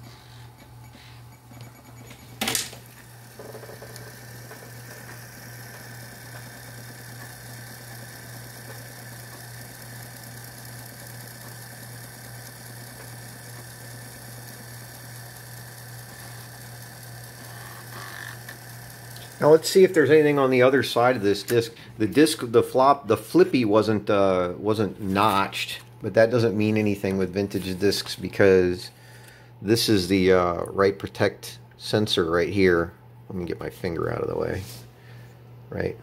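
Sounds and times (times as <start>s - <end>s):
floppy drive whirring: 0.4s - 22.5s.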